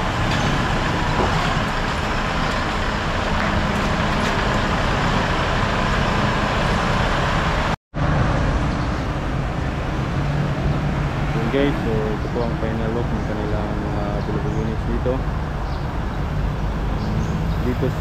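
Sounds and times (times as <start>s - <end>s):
truck engine idling: 0.0s - 7.8s.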